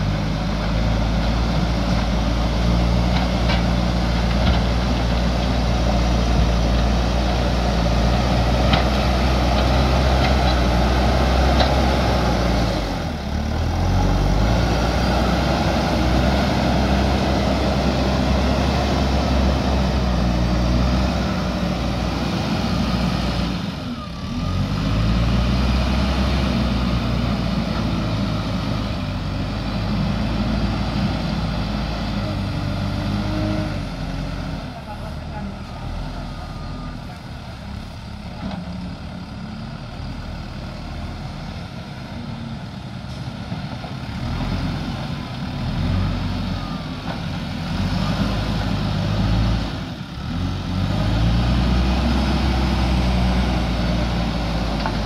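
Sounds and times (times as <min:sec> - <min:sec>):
diesel engine under load: 0:00.0 - 0:55.0.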